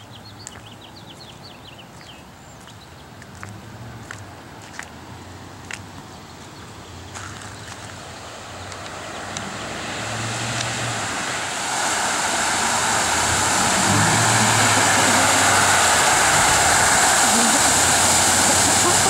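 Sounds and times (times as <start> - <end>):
truck engine hum: 3.4 - 19.0
water spray rushing hiss: 7.4 - 19.0.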